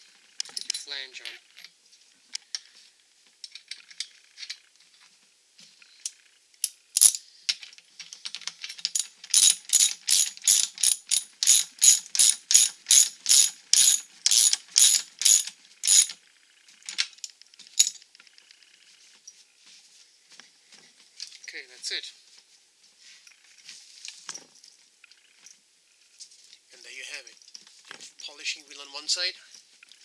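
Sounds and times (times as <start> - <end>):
metal parts clicking: 6.0 - 16.2
socket ratchet clicking: 9.0 - 16.1.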